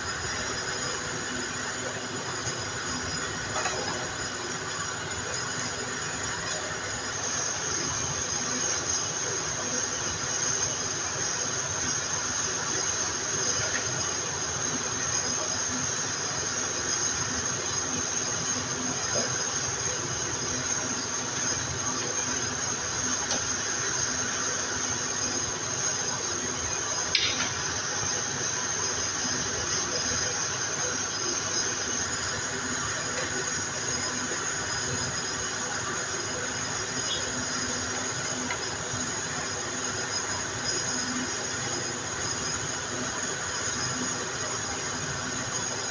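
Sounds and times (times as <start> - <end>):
sharp click: 27.1 - 27.6.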